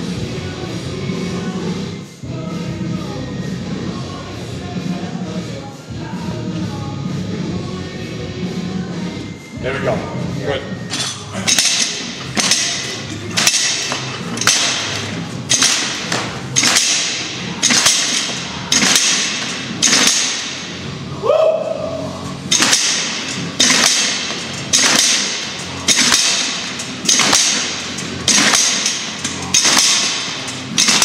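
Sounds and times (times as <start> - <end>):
battle rope slapping floor: 11.5 - 20.6, 22.6 - 31.0.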